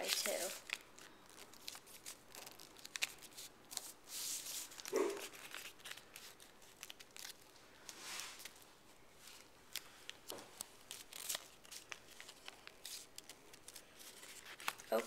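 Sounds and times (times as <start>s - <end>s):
paper crinkling and rustling: 0.0s - 8.6s, 9.2s - 15.0s.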